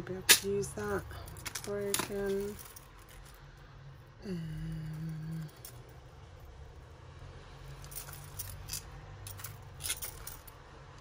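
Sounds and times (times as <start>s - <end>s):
faint steady hum: 0.0s - 11.0s
metal jewellery clinking: 0.3s - 3.6s, 4.9s - 6.6s, 7.6s - 10.7s.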